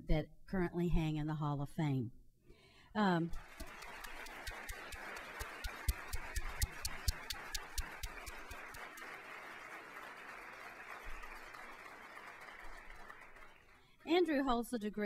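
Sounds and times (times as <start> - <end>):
sharp claps close by: 3.3 - 13.8
audience applauding: 3.4 - 13.9.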